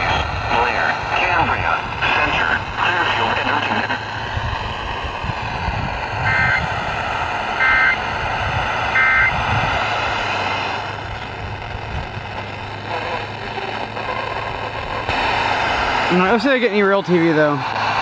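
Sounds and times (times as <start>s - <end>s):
static hiss: 0.0s - 18.0s
two-tone data bursts: 6.2s - 6.7s, 7.5s - 8.0s, 8.9s - 9.4s.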